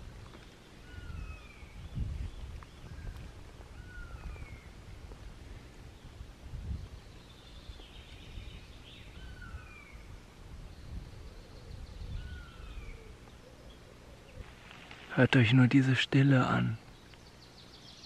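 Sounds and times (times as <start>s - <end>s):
scratchy bird chatter: 14.3s - 17.8s.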